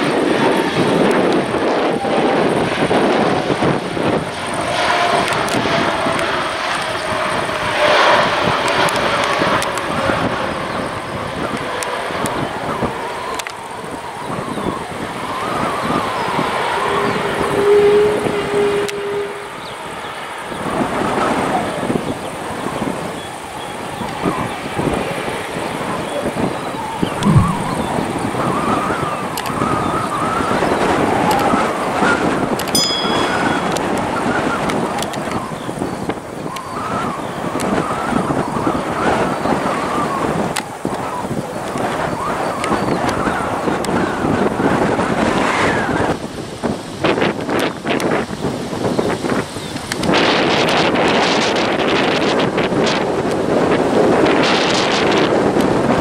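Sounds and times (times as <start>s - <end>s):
jet engines roaring at takeoff: 0.0s - 32.7s, 33.3s - 56.0s
wind rumble on microphone: 0.0s - 56.0s.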